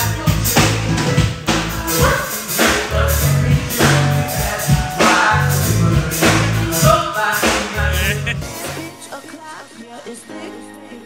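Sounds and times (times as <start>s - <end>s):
person singing: 1.8s - 11.0s
heavy bass line: 7.8s - 8.6s.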